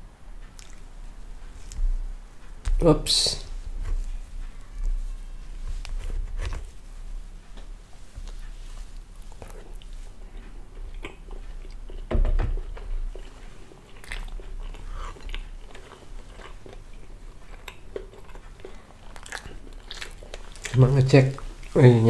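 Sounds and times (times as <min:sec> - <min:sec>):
chewing with wet mouth sounds: 0:00.4 - 0:02.6, 0:08.0 - 0:22.0.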